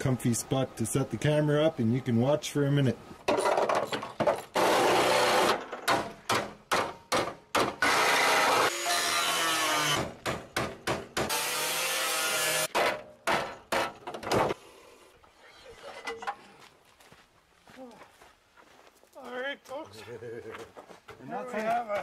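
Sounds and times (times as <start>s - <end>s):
reciprocating saw cutting sheet metal: 11.3s - 12.8s.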